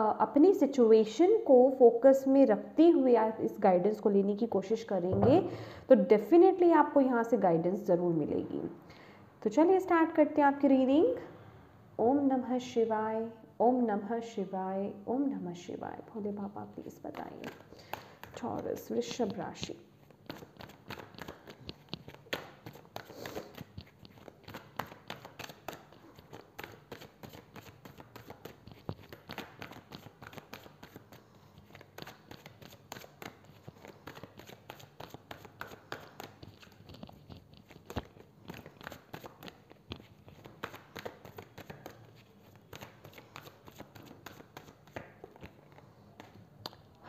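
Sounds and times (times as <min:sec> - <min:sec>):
cards being shuffled: 0:17.0 - 0:19.4, 0:20.0 - 0:46.9.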